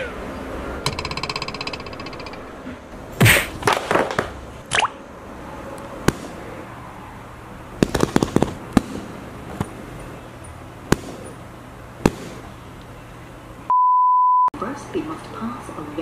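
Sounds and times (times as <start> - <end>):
steady high beep: 13.7 - 14.5.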